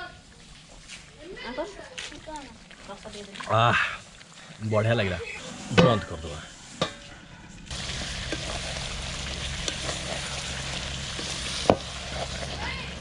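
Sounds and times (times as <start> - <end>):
chicken sizzling in a pan: 7.7 - 13.0.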